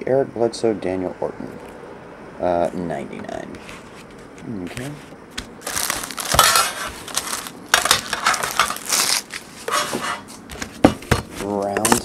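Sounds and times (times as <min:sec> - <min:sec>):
metal tin and wrapping crinkling: 0:05.6 - 0:10.4.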